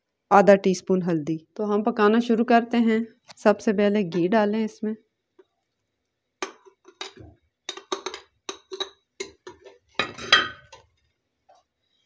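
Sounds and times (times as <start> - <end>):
spoon scraping metal pot: 6.6 - 10.9.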